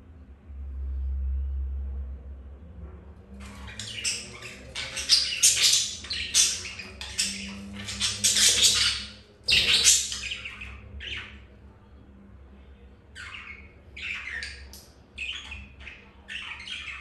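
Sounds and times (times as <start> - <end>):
budgerigars chattering: 3.4 - 11.4.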